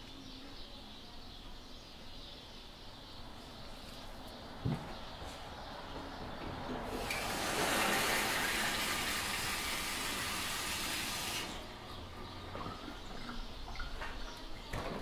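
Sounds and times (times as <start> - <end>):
faucet water running over hands: 6.9 - 11.6.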